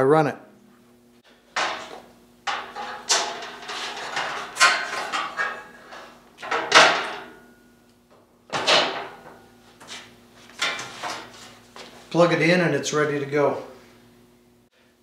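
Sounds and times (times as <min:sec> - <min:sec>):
bandsaw clunking onto steel stand: 0:06.4 - 0:07.4.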